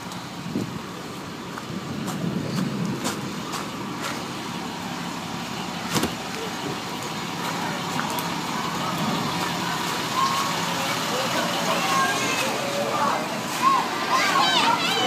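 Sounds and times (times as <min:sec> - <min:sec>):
bus engines idling: 0:00.0 - 0:15.0
footsteps crunching on hail: 0:01.5 - 0:04.6.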